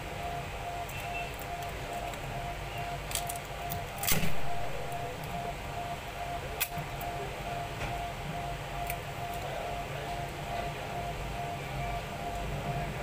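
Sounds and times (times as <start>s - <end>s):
faint pulsing tone: 0.0s - 3.0s, 3.6s - 13.0s
steady low hum: 0.0s - 13.0s
sharp clicks of phone parts: 3.0s - 4.5s, 6.6s - 7.1s.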